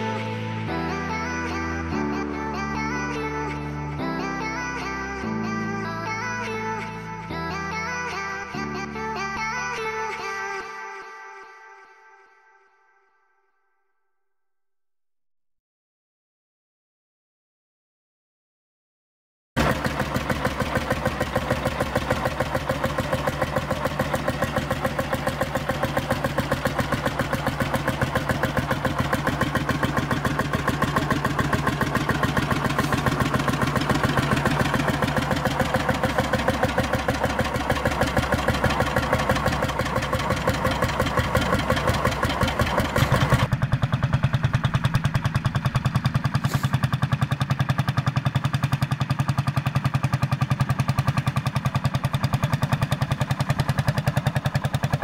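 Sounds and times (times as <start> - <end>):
tractor engine running: 19.6 - 55.0.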